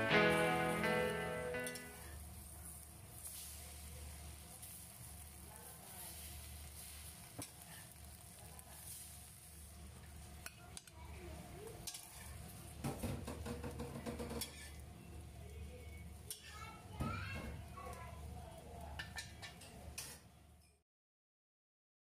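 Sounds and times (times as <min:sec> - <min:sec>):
faint sizzle of frying: 0:00.0 - 0:20.8
metal spatula scraping wok: 0:11.8 - 0:12.4, 0:14.4 - 0:14.8
clatter on metal plate: 0:13.0 - 0:14.7.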